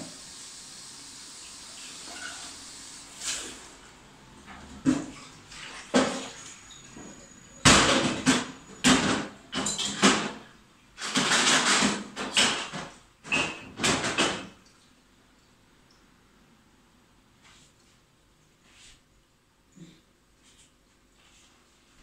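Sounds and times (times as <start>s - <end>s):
loud knocks rattles and scrapes: 5.8s - 14.6s.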